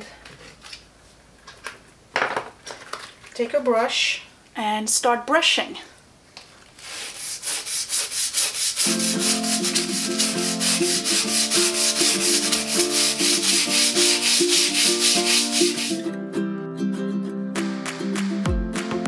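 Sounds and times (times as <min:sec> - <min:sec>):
scrub brush scrubbing wet grout: 0:06.8 - 0:16.0
background music: 0:08.8 - 0:19.0.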